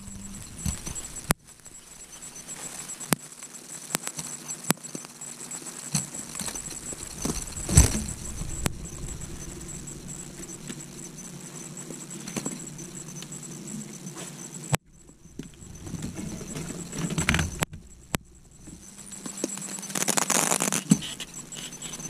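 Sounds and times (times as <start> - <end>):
heavy thump: 6.6 - 11.1
knocks and clicks in aluminum boat: 15.0 - 18.9.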